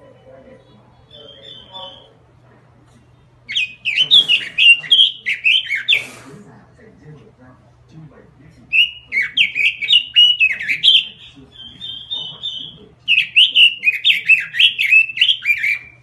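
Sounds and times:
bird warbling song: 0.0 - 2.2, 3.4 - 6.0, 8.6 - 16.0.

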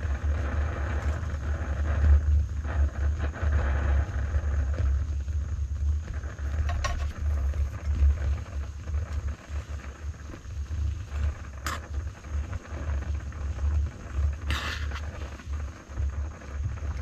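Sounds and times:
gas stove burner rumble: 0.0 - 17.0
utensil scraping a pot: 6.6 - 7.6, 14.5 - 15.3.

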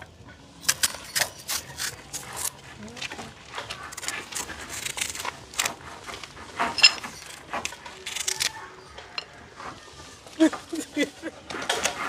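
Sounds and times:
kitchen utensils knocking and scraping: 5.7 - 8.2.

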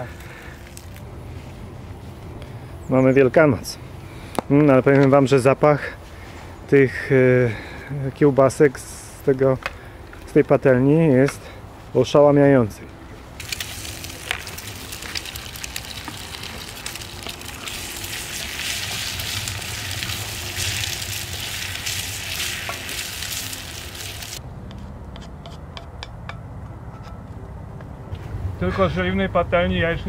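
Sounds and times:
sausage sizzling in a frying pan: 13.4 - 24.4.

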